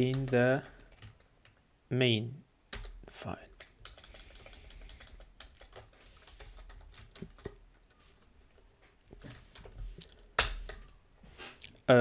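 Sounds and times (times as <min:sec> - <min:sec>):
computer keyboard typing: 0:00.0 - 0:01.6, 0:02.7 - 0:11.0.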